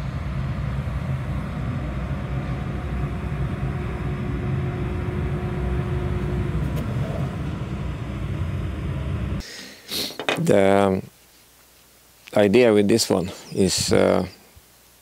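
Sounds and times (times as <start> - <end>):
low mechanical drone: 0.0 - 9.5.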